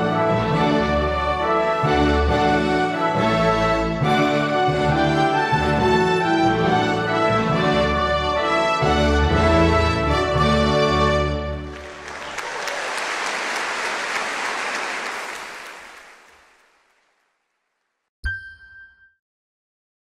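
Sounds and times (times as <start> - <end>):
applause: 11.5 - 17.5.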